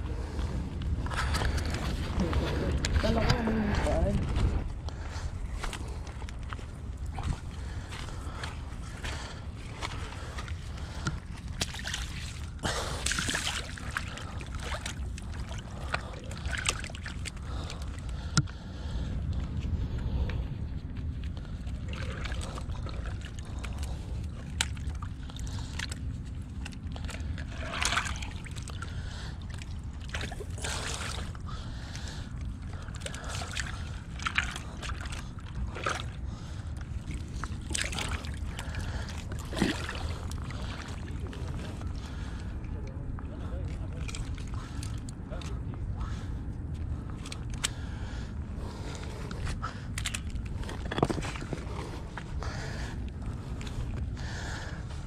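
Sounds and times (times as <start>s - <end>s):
wind rumbling on microphone: 0.0s - 55.0s
footsteps on wet rocks: 1.0s - 17.7s, 48.8s - 54.1s
water sloshing: 1.0s - 19.0s, 21.4s - 55.0s
pebbles shifting underfoot: 50.0s - 52.4s.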